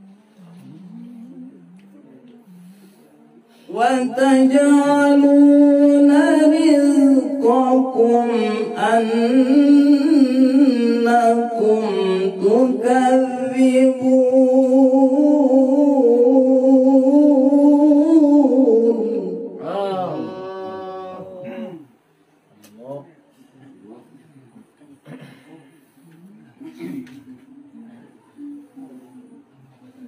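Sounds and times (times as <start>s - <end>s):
man chanting melodically: 3.7s - 21.8s.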